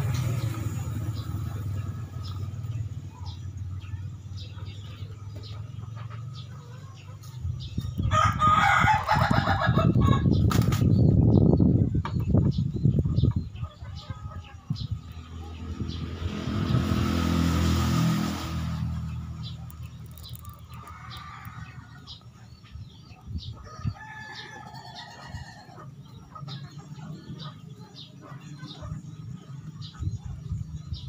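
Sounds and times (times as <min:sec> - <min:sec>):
chickens clucking: 0:00.0 - 0:15.9, 0:19.0 - 0:31.0
small birds chirping: 0:00.0 - 0:31.0
rooster crowing: 0:08.1 - 0:10.3, 0:23.6 - 0:25.8.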